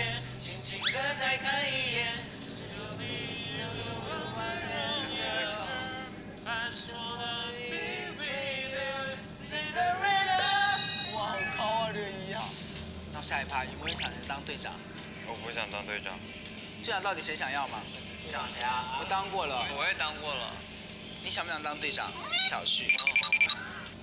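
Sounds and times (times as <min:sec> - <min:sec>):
pop song with male vocal: 0:00.0 - 0:12.5.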